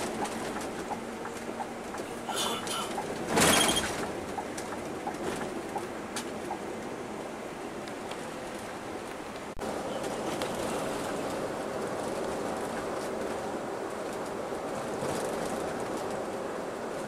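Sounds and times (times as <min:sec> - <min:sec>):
coach engine and road noise: 0:00.0 - 0:17.0.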